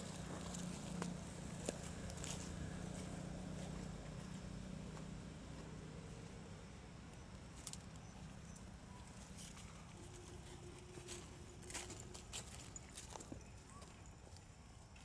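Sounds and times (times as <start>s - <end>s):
rustling in dry leaves: 0.0s - 3.9s, 9.0s - 13.9s.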